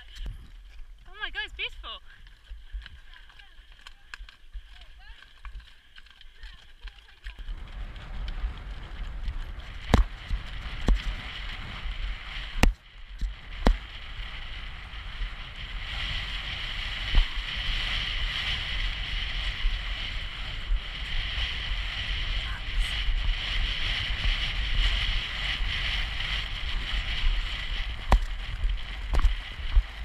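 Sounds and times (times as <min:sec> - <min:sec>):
wind buffeting microphone: 0:06.3 - 0:30.0.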